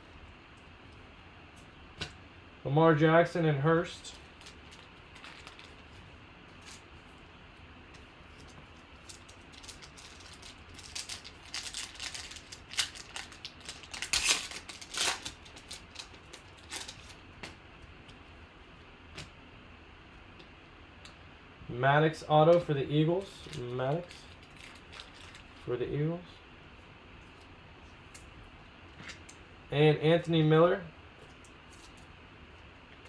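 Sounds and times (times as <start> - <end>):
foil wrapper crinkling and ripping: 4.2 - 6.9, 8.4 - 17.5, 23.4 - 25.7.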